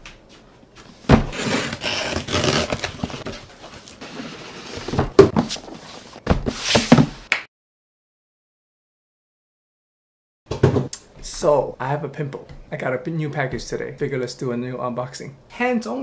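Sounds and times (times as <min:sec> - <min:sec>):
cardboard rustling and scraping: 0:00.8 - 0:07.2.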